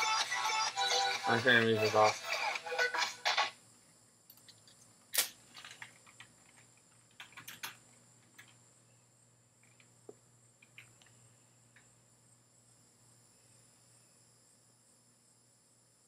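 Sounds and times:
background music: 0:00.0 - 0:03.5.

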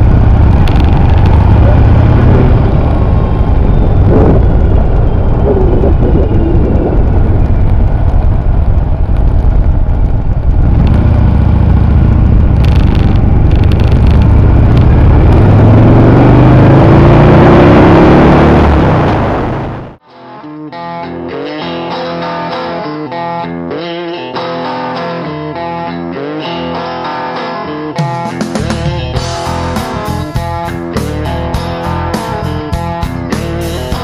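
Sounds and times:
motorcycle engine running: 0:00.0 - 0:20.0, 0:28.5 - 0:34.0
wind rushing over microphone: 0:00.0 - 0:20.0
guitar music: 0:10.8 - 0:34.0.

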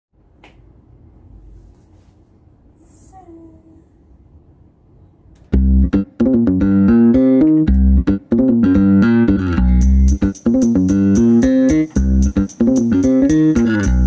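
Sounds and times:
bass guitar: 0:05.5 - 0:14.0
plucked guitar: 0:05.5 - 0:14.0.

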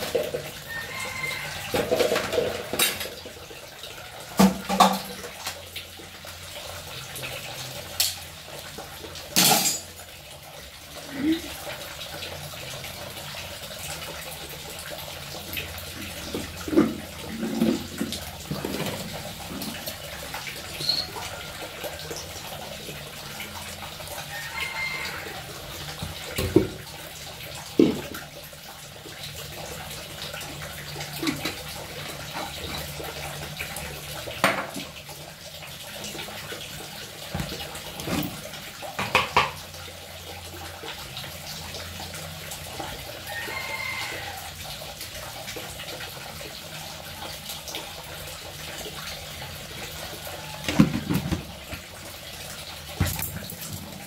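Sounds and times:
tap water running into sink: 0:00.0 - 0:54.0
dishes clinking: 0:09.4 - 0:10.0.

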